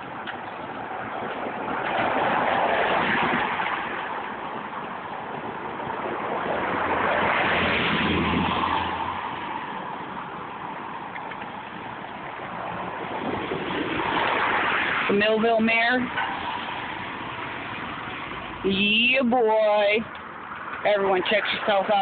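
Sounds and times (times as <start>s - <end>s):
cars driving past: 0.0s - 22.0s.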